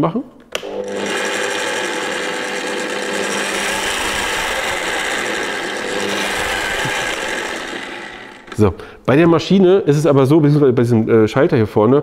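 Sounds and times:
drill press motor whine: 0.6s - 8.7s.

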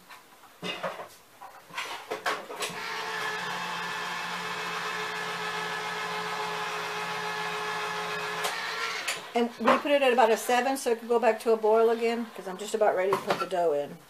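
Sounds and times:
electric appliance motor humming: 2.6s - 13.2s.

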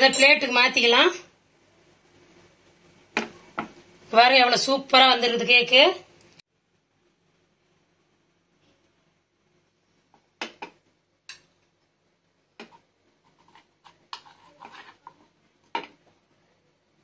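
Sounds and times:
spoon scraping pan: 12.6s - 16.1s.

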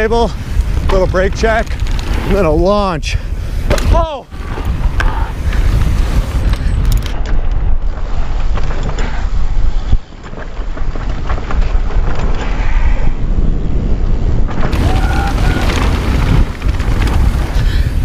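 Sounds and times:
mountain bike rattling on dirt trail: 0.0s - 18.0s
wind buffeting microphone: 0.0s - 18.0s
bike knocks over terrain: 14.5s - 17.6s.

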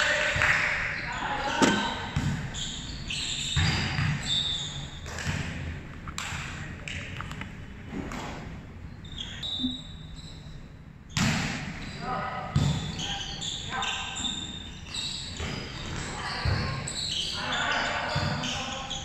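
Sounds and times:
volleyball slaps and thuds: 1.5s - 2.5s, 5.0s - 6.5s, 11.2s - 11.7s, 12.6s - 12.9s.

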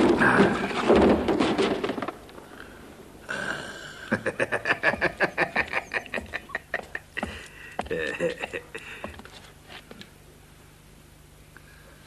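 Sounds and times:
man chuckling: 3.8s - 9.2s.

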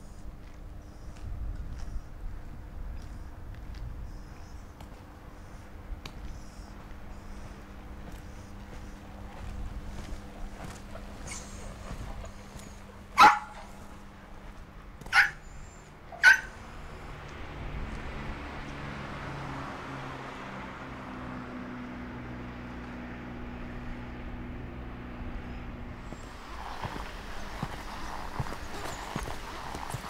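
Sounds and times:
low steady drone: 0.0s - 29.6s
small dog barking: 13.2s - 13.8s, 15.1s - 15.4s, 16.1s - 16.6s.

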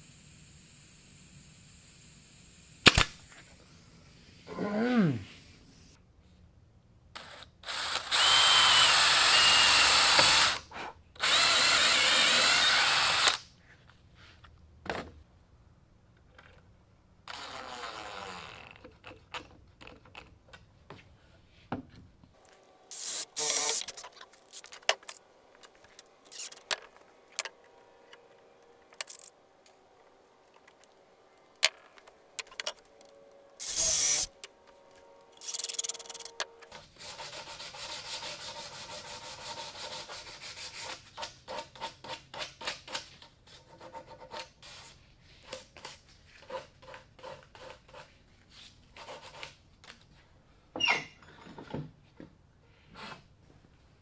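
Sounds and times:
cordless drill running into wood: 7.6s - 10.6s, 11.2s - 13.4s, 23.0s - 23.9s, 33.6s - 34.3s.

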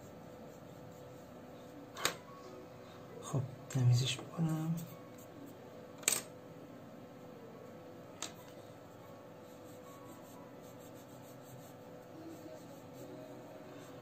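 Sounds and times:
pencil scratching on paper: 9.4s - 14.0s.

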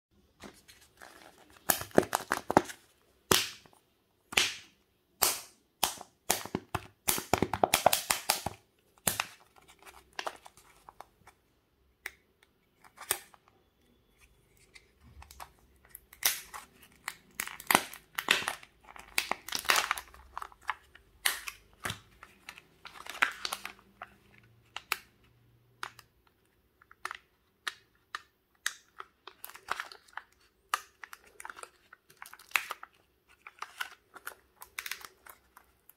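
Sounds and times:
plastic wrapper crinkling and tearing: 0.4s - 3.8s, 6.4s - 11.4s, 12.8s - 25.1s, 26.8s - 35.9s.

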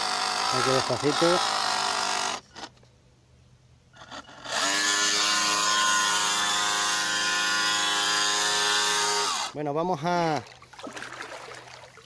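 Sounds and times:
electric motor whine: 0.0s - 2.4s, 4.0s - 9.6s.

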